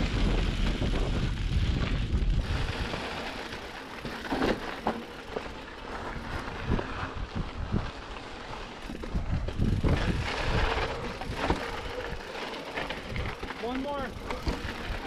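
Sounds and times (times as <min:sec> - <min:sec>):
wind rumble on microphone: 0:00.0 - 0:03.4, 0:06.1 - 0:08.2, 0:08.8 - 0:12.2
bike tyre noise on trail: 0:00.0 - 0:15.0.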